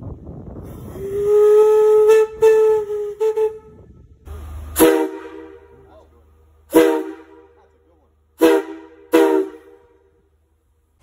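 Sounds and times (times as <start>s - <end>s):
steam whistle blasts: 0.7s - 4.0s, 4.7s - 5.8s, 6.7s - 7.6s, 8.4s - 10.0s.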